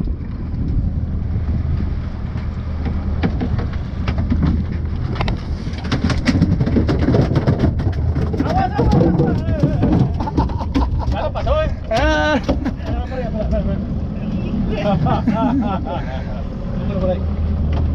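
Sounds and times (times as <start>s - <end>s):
boat engine humming: 0.0s - 17.9s
sharp clicks and knocks: 2.4s - 11.3s.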